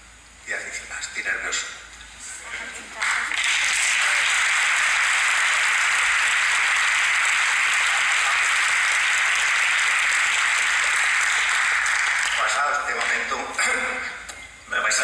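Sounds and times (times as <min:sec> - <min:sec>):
audience applauding: 0:03.0 - 0:13.8.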